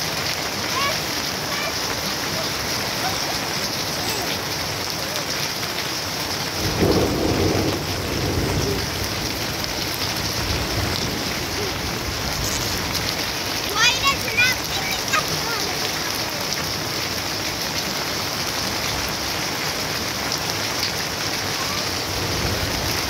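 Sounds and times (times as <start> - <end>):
heavy rain on plants: 0.0 - 23.0
low rumble of thunder: 6.6 - 13.3, 22.0 - 23.0.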